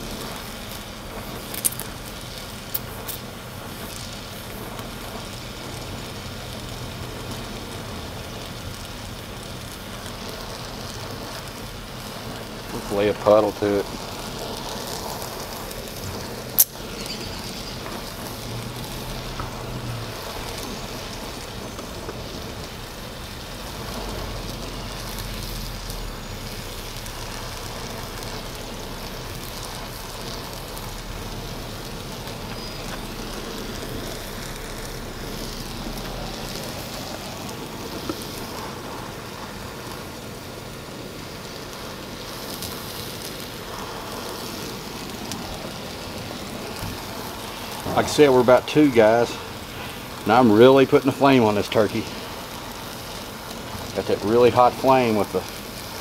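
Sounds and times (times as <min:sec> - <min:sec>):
torch flame hissing: 0:00.0 - 0:56.0.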